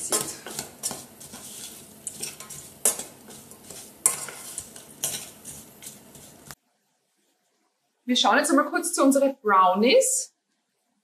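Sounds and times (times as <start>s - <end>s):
spatula scraping saucepan: 0.0s - 6.6s
faint sizzle: 0.0s - 10.3s.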